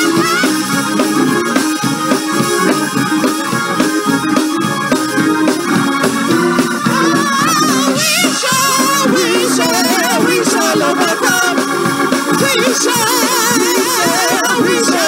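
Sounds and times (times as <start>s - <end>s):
sustained keyboard chords: 0.0s - 15.0s
singing: 7.0s - 11.6s, 12.4s - 15.0s.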